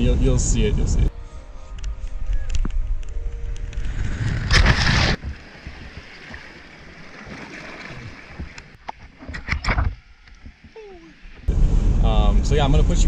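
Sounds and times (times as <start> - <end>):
rush of water: 4.3 - 11.5
wind rushing over microphone: 11.4 - 13.0.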